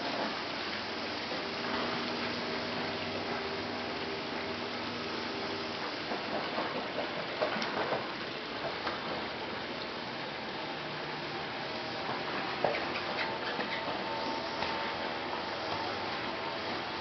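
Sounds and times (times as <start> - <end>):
fountain water pouring into pool: 0.0 - 17.0
dog paddling and splashing water: 11.4 - 17.0.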